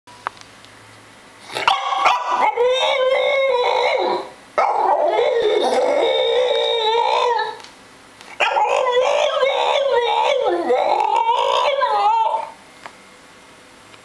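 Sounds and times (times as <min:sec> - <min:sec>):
dog howl-like grumbles: 0:02.4 - 0:07.6, 0:08.4 - 0:12.6.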